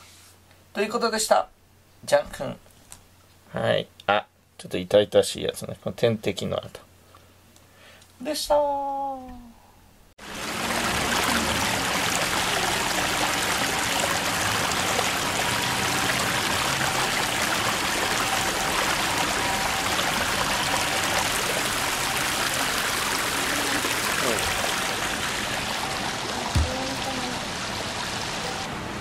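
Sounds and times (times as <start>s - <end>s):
stream water running over stones: 10.2s - 28.7s.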